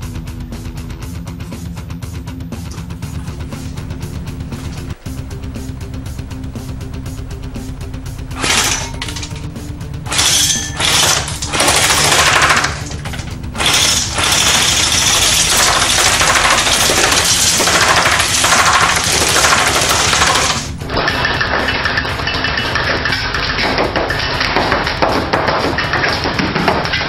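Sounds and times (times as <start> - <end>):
pellets hitting target: 8.3 - 27.0.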